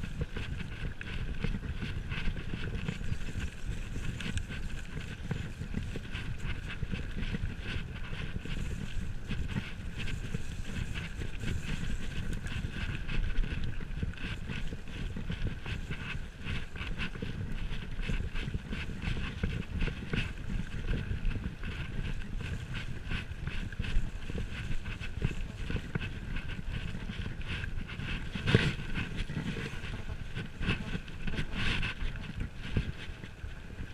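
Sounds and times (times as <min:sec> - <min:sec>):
bike tyres rumbling on dirt: 0:00.0 - 0:33.9.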